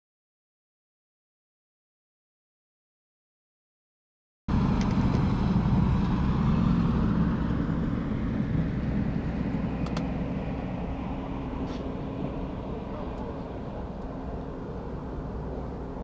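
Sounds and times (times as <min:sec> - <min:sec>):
boat motor rumbling: 0:04.5 - 0:16.0
light clicks: 0:09.8 - 0:10.1.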